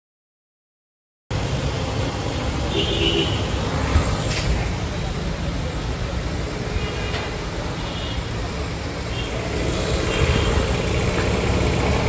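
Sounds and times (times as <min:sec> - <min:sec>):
vehicle engine rumble: 0:01.3 - 0:12.0.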